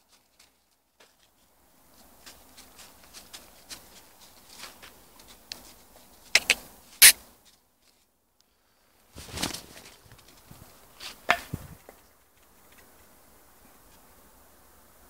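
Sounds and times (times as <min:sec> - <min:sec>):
dry leaves rustling and crunching: 0:00.0 - 0:05.8
scuffing and scraping: 0:00.0 - 0:08.1.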